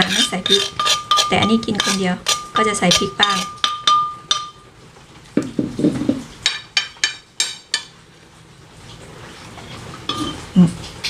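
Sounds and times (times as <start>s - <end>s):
metal spoon clinking on ceramic plate: 0.5s - 4.6s.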